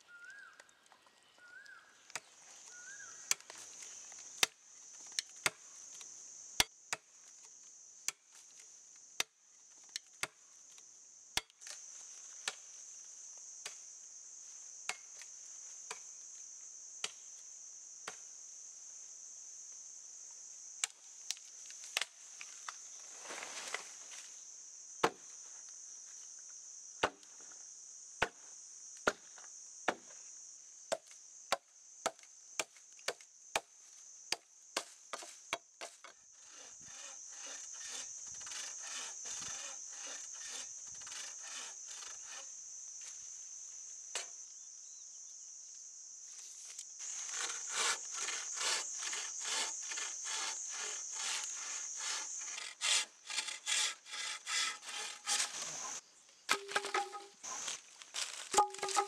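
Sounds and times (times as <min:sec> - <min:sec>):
hand saw cutting bamboo: 0:36.4 - 0:42.5, 0:47.0 - 0:57.3, 0:58.6 - 0:59.0
blade striking bamboo: 0:56.5 - 0:57.4, 0:58.3 - 0:59.0.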